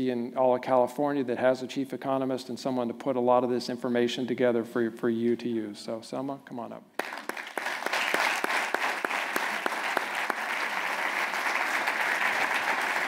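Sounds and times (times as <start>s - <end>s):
audience applauding: 7.0s - 13.0s
single sharp claps: 7.0s - 13.0s.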